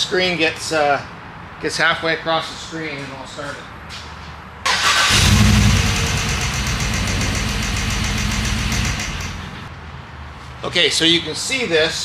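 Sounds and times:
engine cranking on starter: 0:04.7 - 0:09.7.

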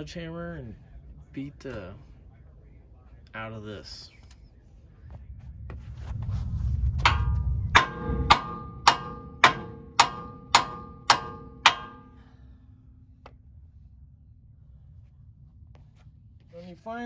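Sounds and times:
sledgehammer striking metal: 0:07.0 - 0:12.4.

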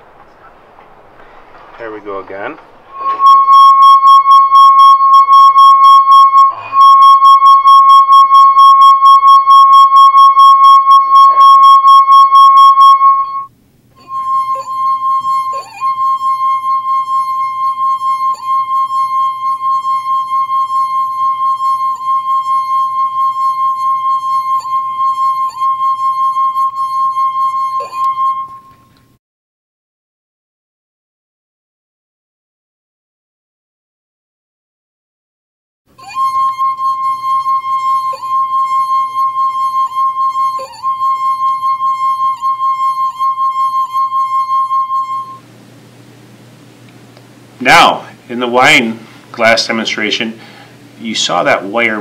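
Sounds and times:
singing wine glass tone: 0:02.9 - 0:29.1, 0:36.0 - 0:45.5.

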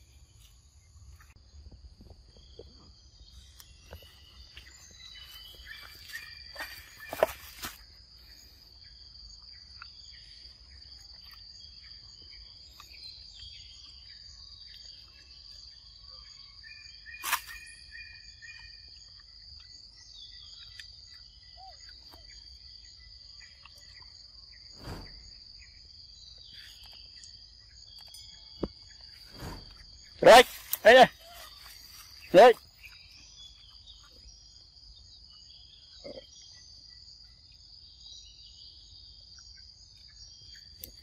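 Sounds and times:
insects chirring: 0:00.0 - 0:41.0
dull thump: 0:24.8 - 0:25.5.

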